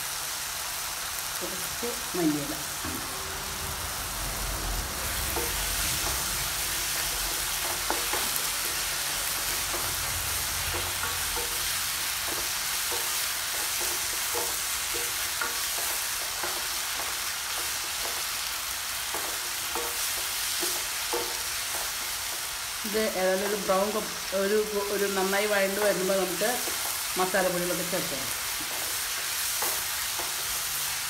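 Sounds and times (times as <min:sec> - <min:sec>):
food sizzling in hot oil: 0:00.0 - 0:31.0
spoon tapping and scraping pan: 0:05.3 - 0:18.4, 0:19.0 - 0:22.6, 0:28.5 - 0:30.6.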